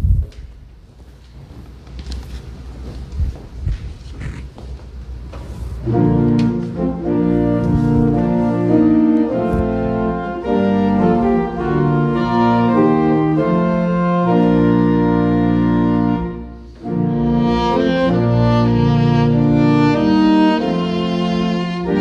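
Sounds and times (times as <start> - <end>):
organ chords: 5.8 - 22.0.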